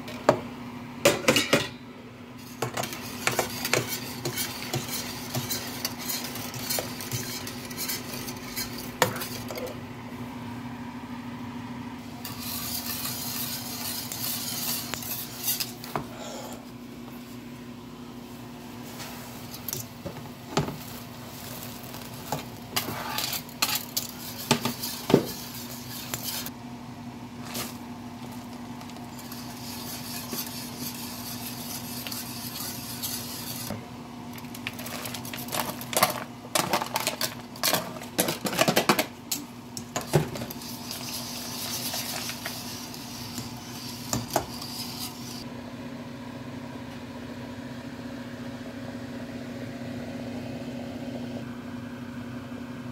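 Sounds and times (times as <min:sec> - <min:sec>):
steady low hum: 0:00.0 - 0:52.9
wire whisk scraping metal pot: 0:02.4 - 0:09.8, 0:12.2 - 0:16.5, 0:20.6 - 0:26.5, 0:27.4 - 0:33.8, 0:34.6 - 0:45.5.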